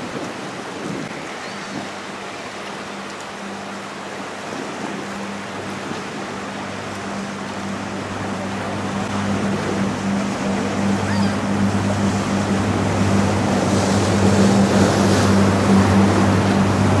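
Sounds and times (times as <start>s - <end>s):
water rushing along hull: 0.0s - 17.0s
ship engine humming: 0.4s - 17.0s.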